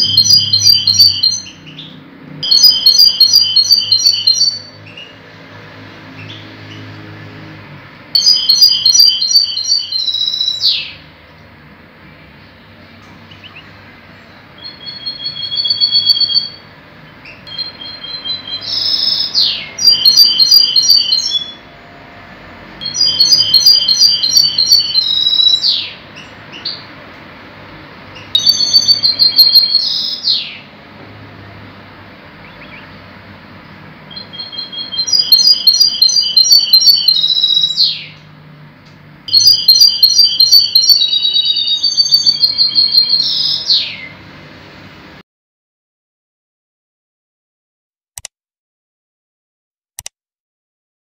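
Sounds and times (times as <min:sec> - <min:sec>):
finch singing: 0:00.0 - 0:05.3, 0:06.1 - 0:07.0, 0:08.2 - 0:21.7, 0:22.8 - 0:26.9, 0:28.1 - 0:30.7, 0:32.4 - 0:33.1, 0:34.0 - 0:38.3, 0:39.3 - 0:44.3.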